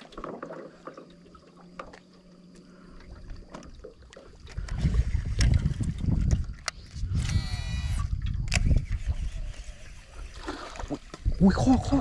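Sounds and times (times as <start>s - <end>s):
wind buffeting microphone: 4.4s - 12.0s.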